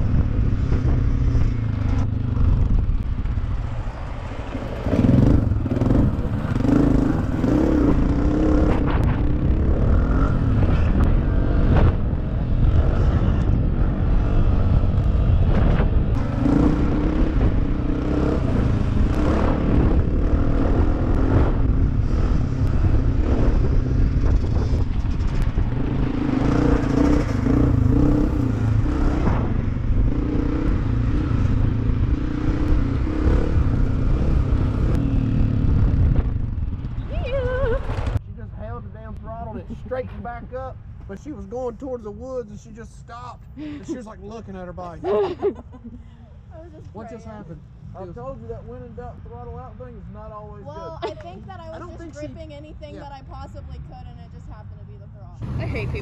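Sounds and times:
dirt bike engine revving: 0.0 - 36.4.

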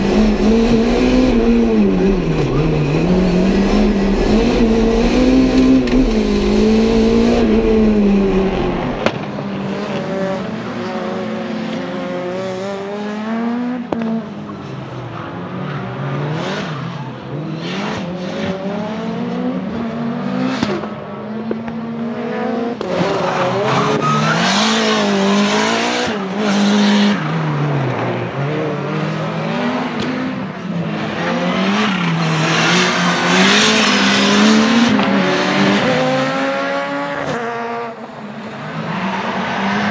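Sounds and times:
race car engine revving: 0.0 - 14.0, 22.1 - 38.0.

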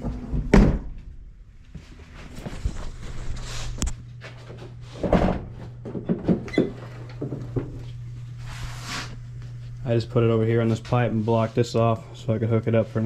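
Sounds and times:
steady low hum: 0.0 - 13.0
handling knocks and thumps: 4.4 - 7.9.

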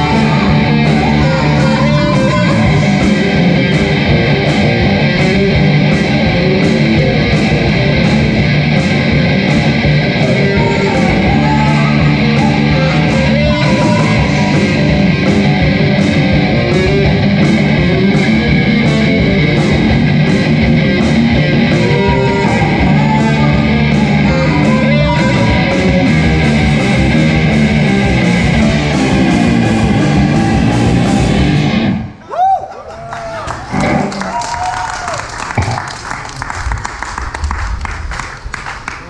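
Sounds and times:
woman singing: 0.0 - 3.0, 10.2 - 14.9, 21.8 - 25.9
drum kit beat: 0.0 - 31.9
electric guitars: 0.0 - 32.2, 33.4 - 39.0.

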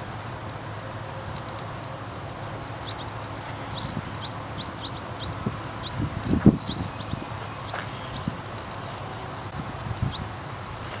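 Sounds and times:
swallows chirping: 2.8 - 10.3.

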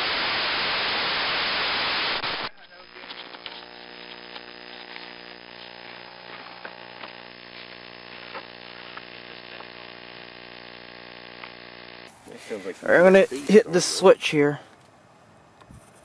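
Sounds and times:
hiss: 0.0 - 2.5
electrical hum: 0.0 - 16.0.

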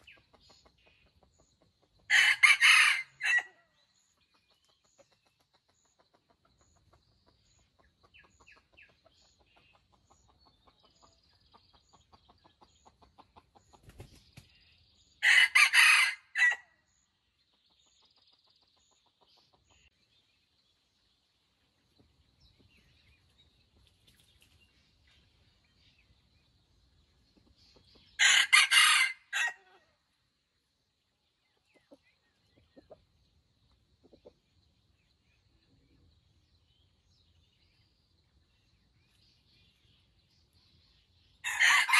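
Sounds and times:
faint clucks and chirps: 0.0 - 41.9
rooster crowing: 2.1 - 3.5, 15.2 - 16.6, 28.2 - 29.7, 41.5 - 41.9.

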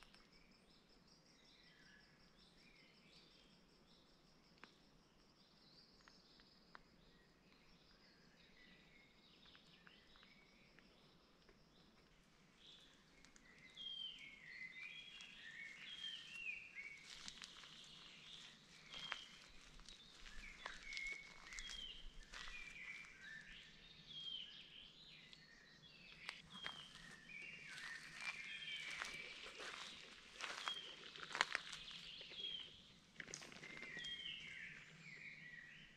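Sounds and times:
songbirds singing: 0.0 - 35.9
footsteps on dirt track: 15.0 - 23.6, 26.3 - 34.3.

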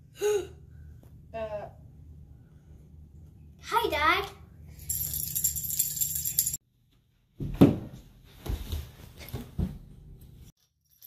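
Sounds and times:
jingle of bells: 4.8 - 6.6
child tumbling on floor thumps: 7.4 - 9.9.

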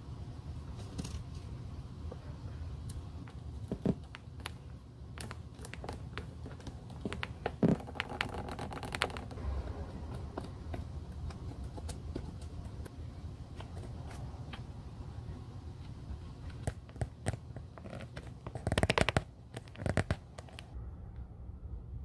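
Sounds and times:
leather clicks and crinkles: 16.6 - 20.8.

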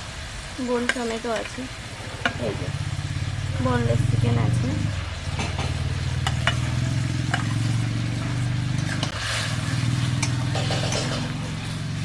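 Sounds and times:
low motor hum: 1.9 - 12.0
metal spatula scraping pan: 5.7 - 11.8.

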